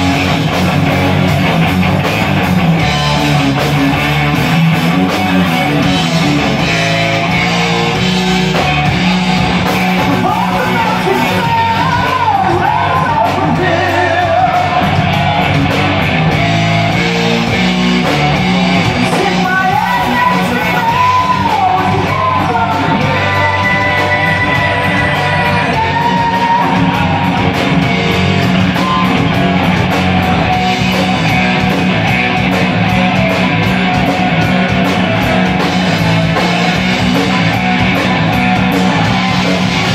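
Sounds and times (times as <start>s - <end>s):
guitar lead bending pitch: 0.0s - 12.3s
heavy metal band playing: 0.0s - 39.9s.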